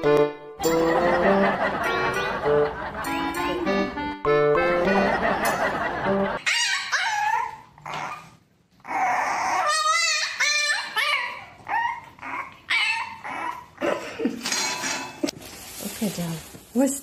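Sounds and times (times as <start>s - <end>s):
puppy whining and yelping: 6.4s - 14.0s.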